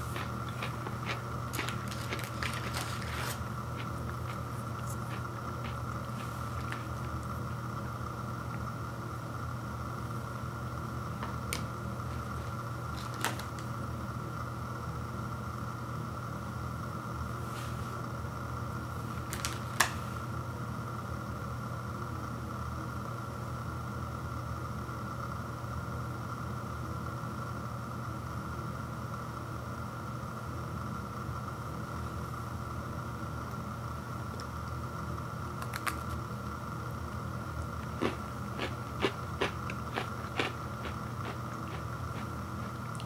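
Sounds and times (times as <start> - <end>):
low machine hum: 0.0 - 43.0
faint clicks of cookies handled: 35.6 - 36.6.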